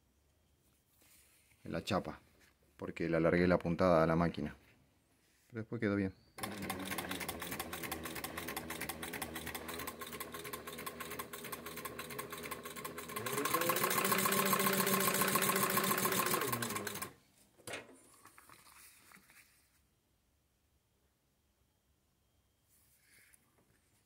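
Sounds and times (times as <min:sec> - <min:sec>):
sewing machine clattering: 0:06.4 - 0:17.2.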